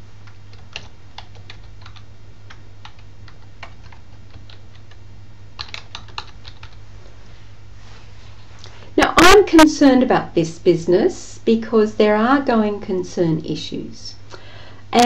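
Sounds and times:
steady low hum: 0:00.0 - 0:15.0
keyboard keys clicking: 0:00.2 - 0:05.0, 0:05.6 - 0:06.8.

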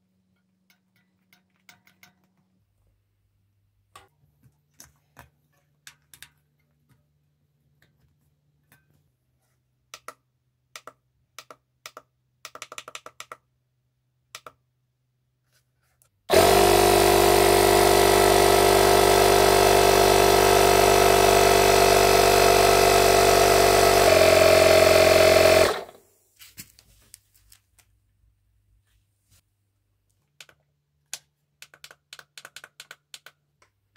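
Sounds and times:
air compressor running: 0:16.3 - 0:26.0.

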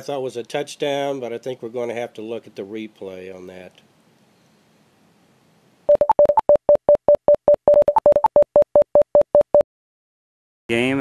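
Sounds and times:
rapid electronic beeps: 0:05.9 - 0:09.6.

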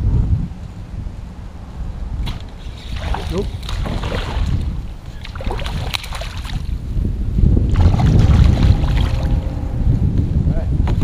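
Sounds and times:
wind rumbling on microphone: 0:00.0 - 0:11.0
fish splashing in water: 0:02.6 - 0:06.7, 0:07.7 - 0:09.4.

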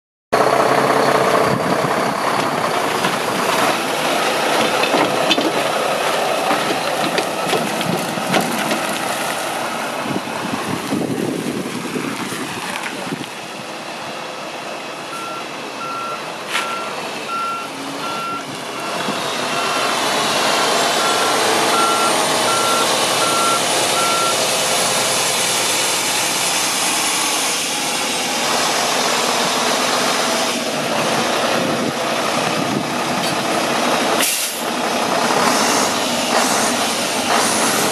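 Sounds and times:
diesel truck engine running: 0:00.4 - 0:37.9
backup alarm beeping: 0:15.1 - 0:19.9, 0:21.0 - 0:24.4.

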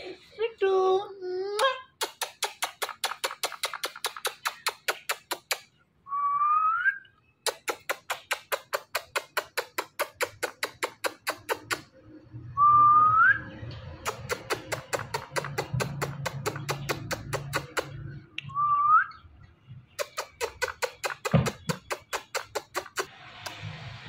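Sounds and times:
kissing clicks with lips: 0:01.5 - 0:05.8, 0:07.4 - 0:11.9, 0:13.9 - 0:18.5, 0:19.9 - 0:23.6
short rising whistle: 0:12.6 - 0:13.5.

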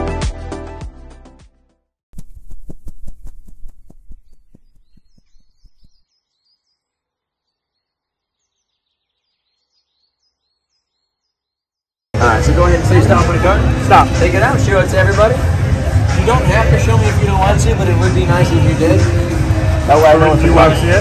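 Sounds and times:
background music: 0:00.0 - 0:01.8, 0:12.2 - 0:21.0
faint high bird chirps: 0:03.8 - 0:11.9.

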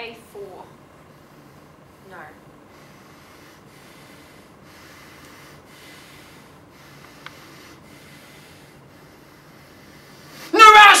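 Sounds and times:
faint steady hiss: 0:00.0 - 0:11.0.

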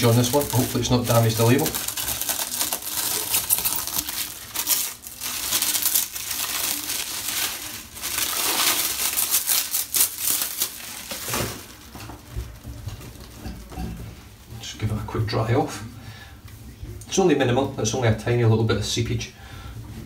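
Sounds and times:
plastic cling wrap crinkling: 0:00.0 - 0:15.3.

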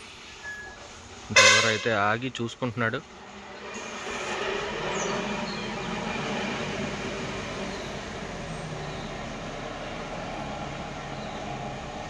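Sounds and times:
lorry diesel engine running: 0:02.9 - 0:12.0.

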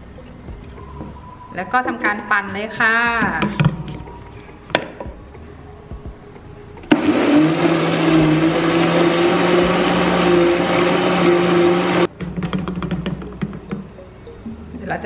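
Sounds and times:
blender motor humming and whining: 0:06.9 - 0:12.1.

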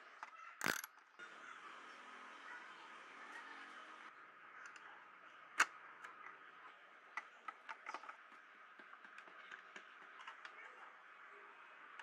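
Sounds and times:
screwdriver clicking: 0:00.6 - 0:00.9.

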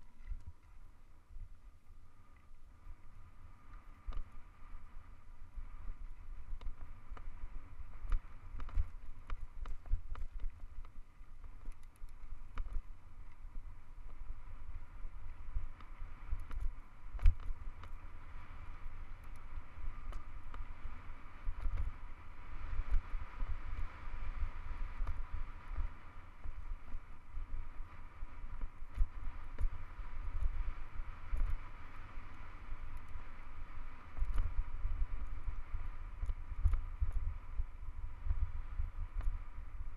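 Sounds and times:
sharp clicks from bike and stones: 0:00.0 - 0:39.9
wind buffeting microphone: 0:03.0 - 0:39.9.

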